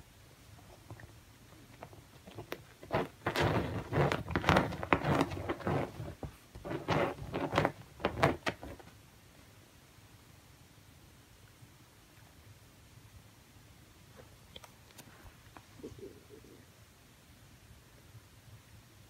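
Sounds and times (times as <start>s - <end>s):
cat scratching a cushion: 1.8s - 9.0s.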